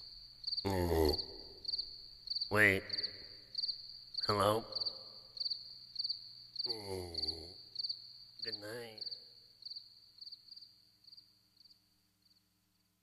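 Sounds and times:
crickets chirping: 0:00.0 - 0:13.0
man muttering: 0:00.6 - 0:01.4, 0:06.7 - 0:07.6.

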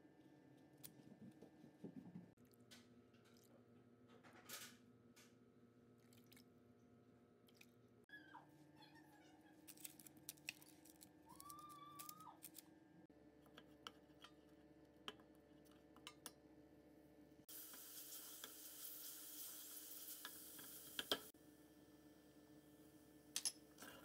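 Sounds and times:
garlic sizzling in frying fat: 0:17.5 - 0:21.3.

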